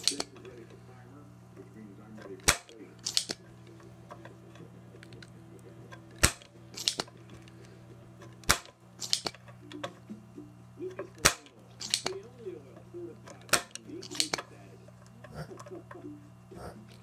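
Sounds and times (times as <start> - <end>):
desoldering pump plunger snapping: 0.0 - 0.6, 2.2 - 10.0, 10.9 - 12.2, 13.2 - 15.7.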